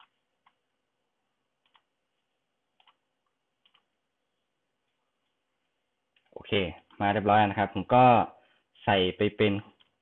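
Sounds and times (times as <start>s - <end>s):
computer mouse clicks: 1.6s - 1.9s, 2.7s - 3.9s, 9.7s - 10.0s.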